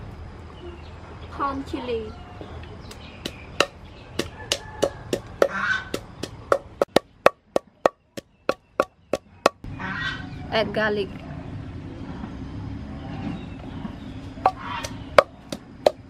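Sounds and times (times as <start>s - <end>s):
wooden pestle pounding in mortar: 2.9s - 9.6s, 14.5s - 16.0s.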